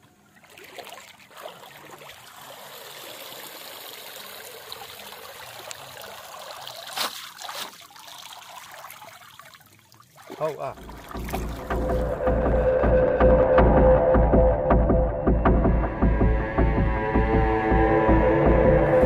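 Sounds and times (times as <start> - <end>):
water splashing and trickling: 0.0 - 13.5
water draining through crate: 0.4 - 12.5
sharp splashes or knocks: 6.6 - 9.2, 10.1 - 12.6.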